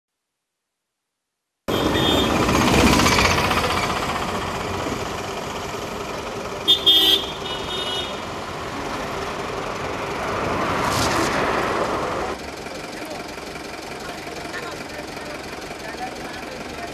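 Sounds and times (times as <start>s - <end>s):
vehicle horn toots: 1.7s - 2.5s, 6.6s - 8.2s
motorcycle approaching: 1.7s - 16.9s
vehicle engines running: 1.7s - 16.9s.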